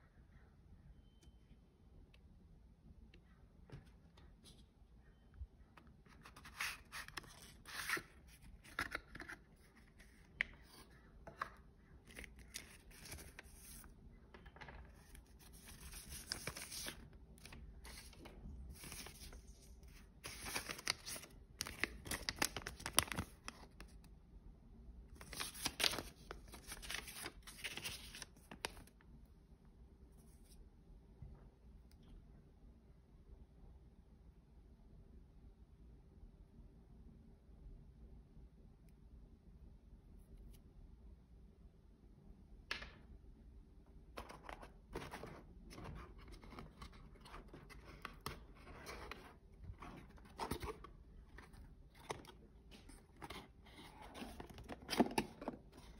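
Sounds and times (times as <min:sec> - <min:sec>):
paper and cardboard rustling: 0:14.6 - 0:23.4, 0:44.2 - 0:55.9.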